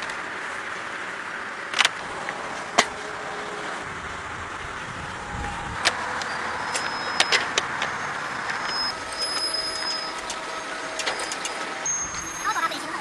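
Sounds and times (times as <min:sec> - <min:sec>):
farm machinery running: 0:00.0 - 0:13.0
sharp clicks and knocks: 0:01.7 - 0:03.0, 0:05.8 - 0:09.5.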